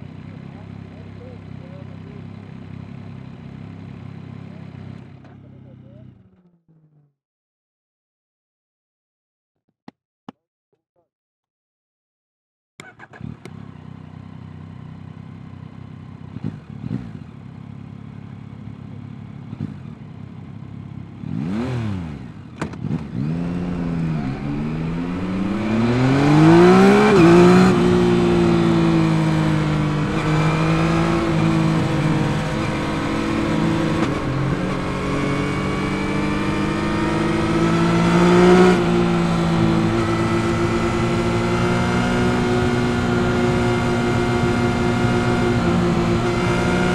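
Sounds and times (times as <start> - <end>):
motorcycle engine revving: 12.8 - 46.9.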